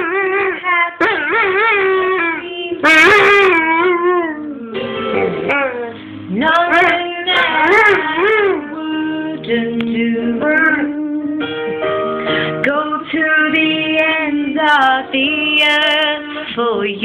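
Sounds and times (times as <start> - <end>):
woman singing: 0.0 - 11.7, 12.4 - 17.0
dog howling: 5.4 - 6.0.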